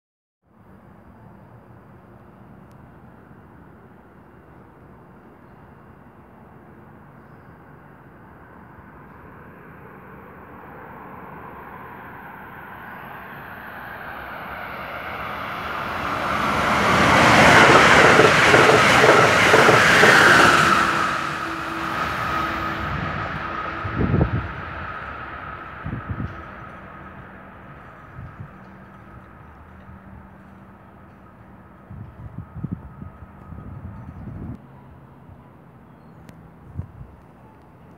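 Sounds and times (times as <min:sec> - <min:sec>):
locomotive whine: 0:11.0 - 0:34.6
train wheels rushing on rails: 0:13.0 - 0:34.4
clattering train wheels: 0:15.6 - 0:23.8, 0:25.1 - 0:32.3.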